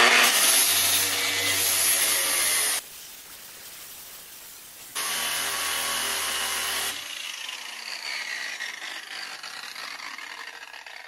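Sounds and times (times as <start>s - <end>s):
angle grinder grinding steel: 0.0s - 2.8s, 5.0s - 11.0s
grinder disc whirring down: 6.4s - 11.0s.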